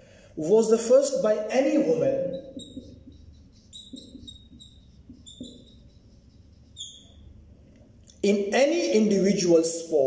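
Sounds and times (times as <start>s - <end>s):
marker squeaking on whiteboard: 1.6s - 7.6s.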